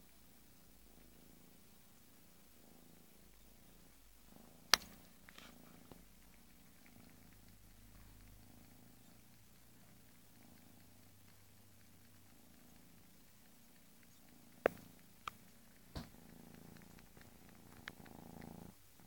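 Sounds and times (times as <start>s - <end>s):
kitten purring: 0.0s - 19.0s
sharp clicks: 4.7s - 18.6s.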